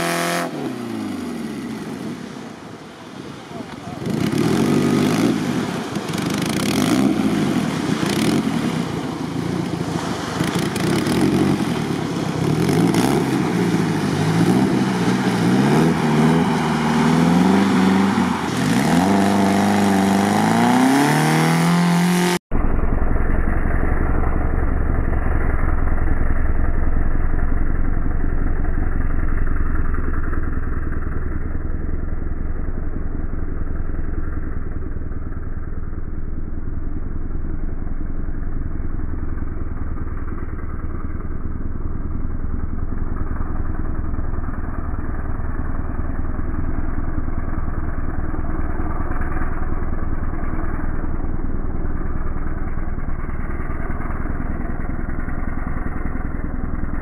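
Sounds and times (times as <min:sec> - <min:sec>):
engine revving hard: 0:00.0 - 0:02.0, 0:04.0 - 0:09.0, 0:10.3 - 0:22.4.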